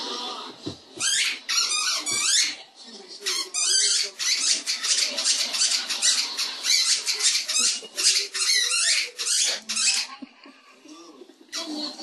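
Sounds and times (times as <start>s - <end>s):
squeaky dog toy squeaks: 1.0s - 2.6s, 3.3s - 10.1s.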